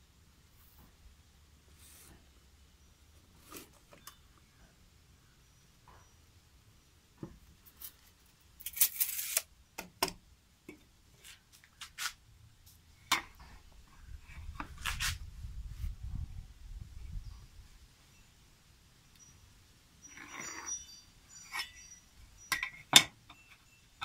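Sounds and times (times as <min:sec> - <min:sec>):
tape measure scraping on wood: 0:08.6 - 0:09.5.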